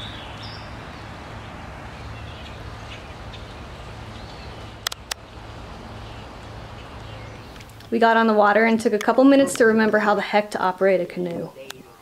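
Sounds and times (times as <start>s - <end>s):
small birds chirping: 0.0s - 9.9s
sharp clicks: 4.8s - 5.2s.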